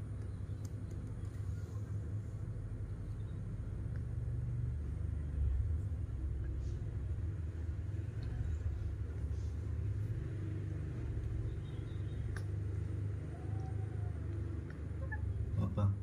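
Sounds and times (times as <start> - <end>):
faint small clicks: 0.1 - 1.4, 12.2 - 12.6.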